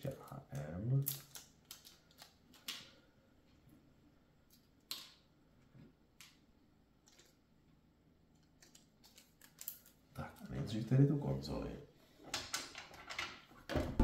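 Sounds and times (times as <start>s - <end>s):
plastic parts clicking: 1.0s - 2.9s, 8.3s - 10.0s.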